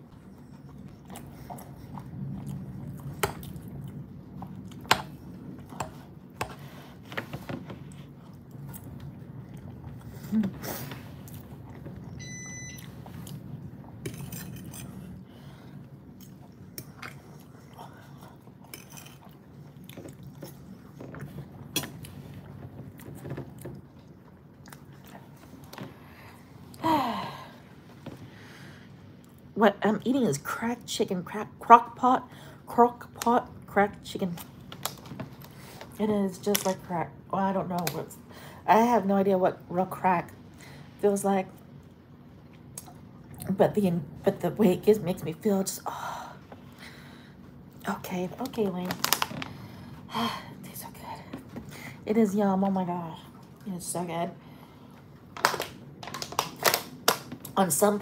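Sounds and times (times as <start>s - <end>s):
chewing: 0.2s - 6.2s, 15.8s - 25.8s.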